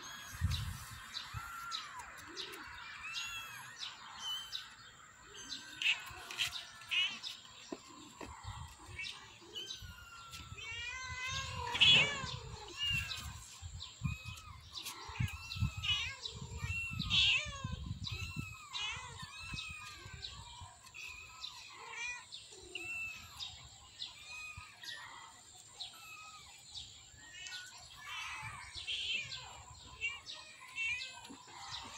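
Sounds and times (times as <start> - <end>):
birds chirping faintly: 0.0 - 31.9
kittens mewing: 8.0 - 31.9
cat meowing: 9.5 - 13.4.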